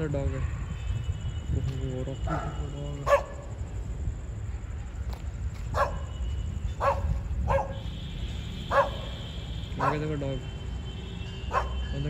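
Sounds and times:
dog barking: 2.3s - 3.5s, 5.7s - 6.1s, 6.8s - 7.9s, 8.7s - 9.2s, 9.8s - 10.1s, 11.5s - 11.8s.

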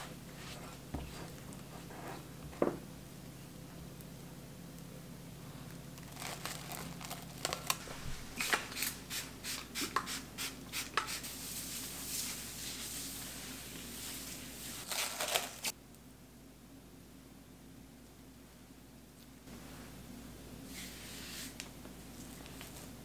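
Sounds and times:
cling wrap tearing: 6.0s - 9.0s, 14.8s - 15.7s
plastic wrap crinkling: 6.0s - 9.0s, 14.7s - 15.7s.

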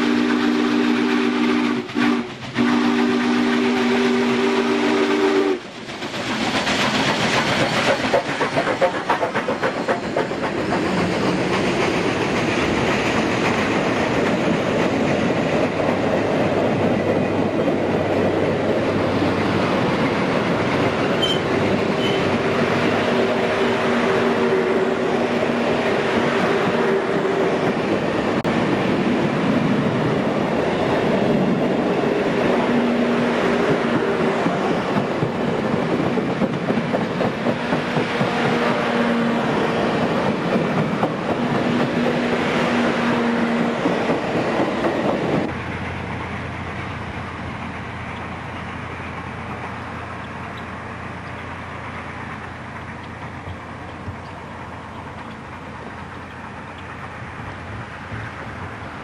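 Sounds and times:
steam locomotive chime whistle: 0.0s - 5.6s, 21.0s - 22.3s
distant train rumble: 0.0s - 59.0s
train wheels clattering on rail: 0.0s - 59.0s.

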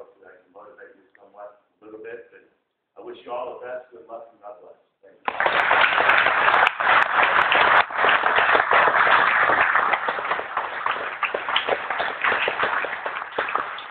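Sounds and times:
audience applauding: 5.3s - 13.9s.

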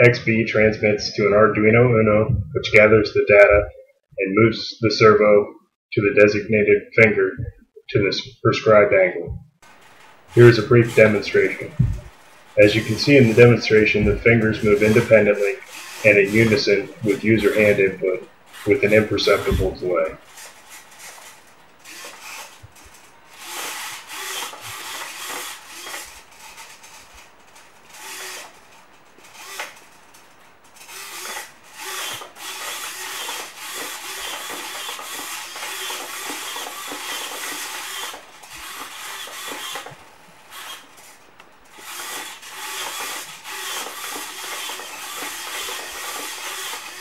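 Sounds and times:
servo motors whirring: 10.3s - 27.1s, 27.9s - 28.6s, 29.2s - 29.9s, 30.8s - 47.0s.

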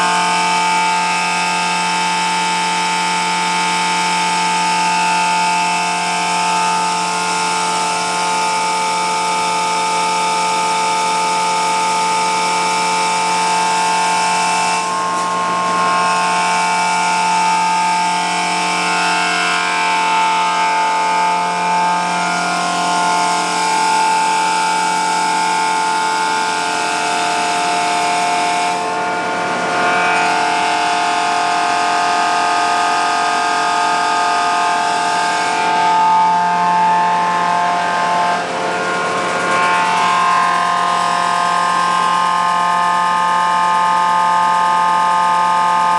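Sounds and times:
steady high whine: 0.0s - 45.9s
mechanical roar: 14.2s - 45.9s.

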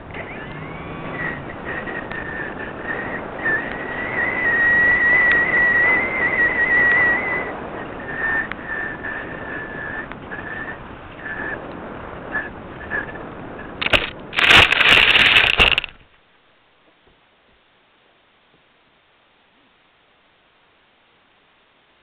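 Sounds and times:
whistling tone: 0.1s - 13.8s
sharp clicks: 13.8s - 16.0s.

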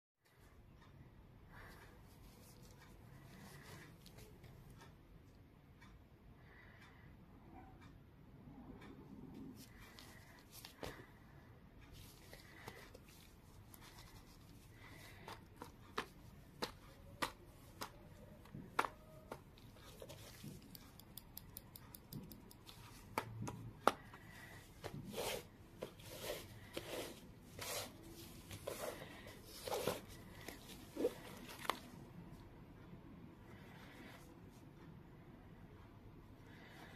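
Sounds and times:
tweezers clicking and tapping: 14.8s - 24.6s.

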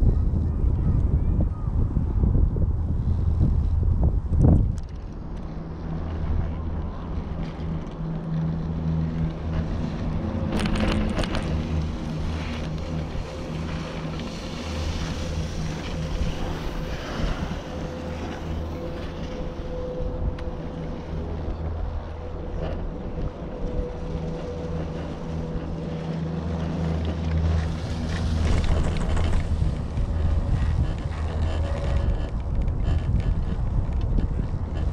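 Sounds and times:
chairlift rope humming: 3.0s - 34.9s
chairlift grip clatter: 10.4s - 12.9s.

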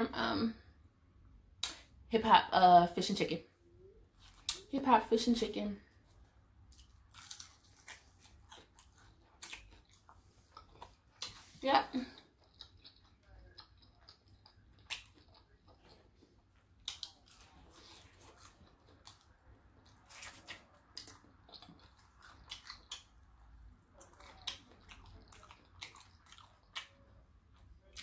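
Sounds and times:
chewing fried food: 5.8s - 28.0s.

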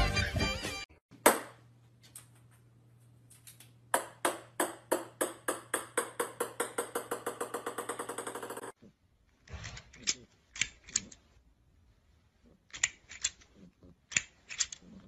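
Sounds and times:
small ball bouncing on hardwood floor: 3.9s - 8.8s.

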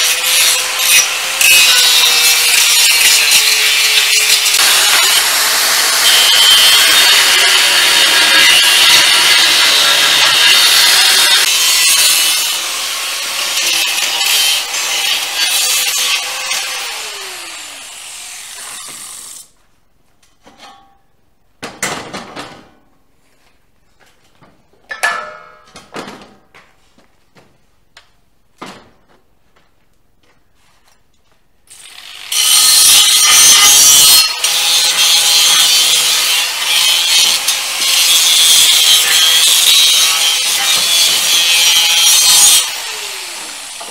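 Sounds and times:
angle grinder grinding steel: 0.0s - 19.5s, 31.7s - 43.9s
knocks of pipe and tools: 24.4s - 26.7s.

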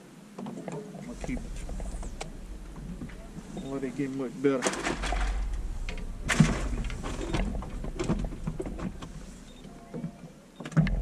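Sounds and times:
low rumble: 1.0s - 9.9s
sharp bumps: 1.1s - 9.9s
fishing gear knocking and clattering: 1.1s - 10.1s.

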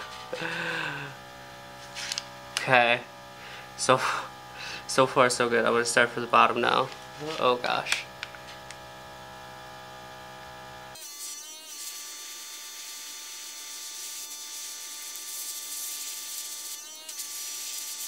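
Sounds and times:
compressor humming: 0.0s - 11.0s.

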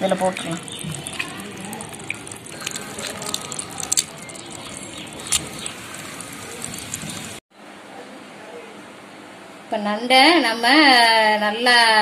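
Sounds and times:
crab shells cracking: 2.5s - 5.6s.

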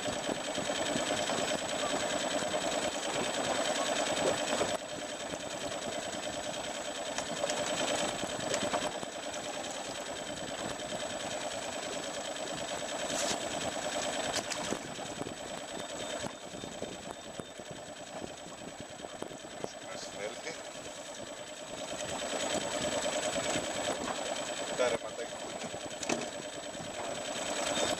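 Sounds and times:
boat engine idling: 0.0s - 27.9s
sharp clicks: 14.0s - 14.9s.

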